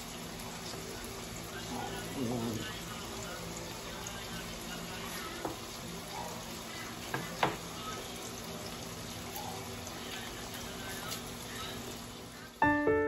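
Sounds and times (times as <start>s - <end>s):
steaks sizzling in a pan: 0.0s - 12.6s
knocks on cutting board: 7.1s - 7.6s.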